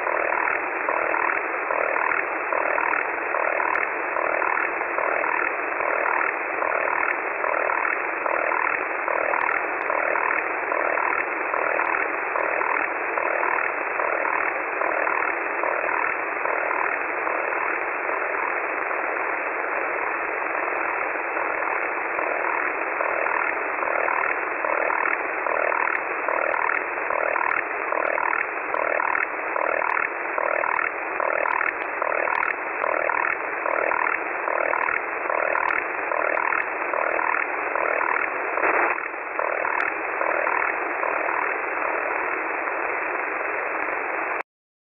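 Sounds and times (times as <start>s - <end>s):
multitone data signal: 0.0s - 44.4s
receiver hiss: 0.0s - 44.4s.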